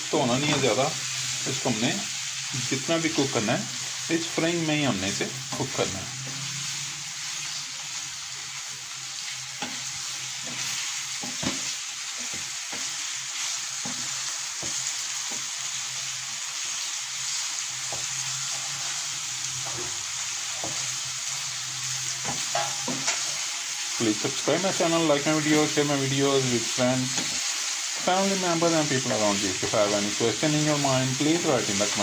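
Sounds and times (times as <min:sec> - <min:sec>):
chicken sizzling in hot oil: 0:00.0 - 0:32.0
wooden spatula scraping a pan: 0:17.8 - 0:23.5.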